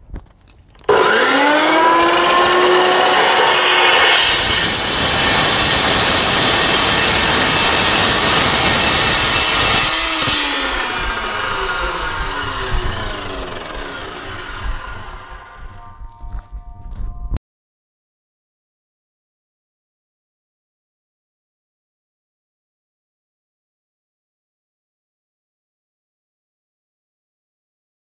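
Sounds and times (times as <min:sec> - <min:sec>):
chop saw spinning: 0:00.8 - 0:16.2
saw blade grinding steel tube: 0:00.9 - 0:15.8.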